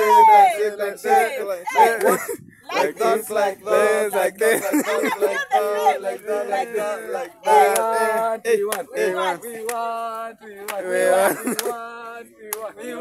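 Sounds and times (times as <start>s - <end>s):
voices singing: 0.0s - 13.0s
sharp claps: 7.7s - 8.0s, 8.7s - 8.9s, 9.6s - 11.8s, 12.5s - 12.8s.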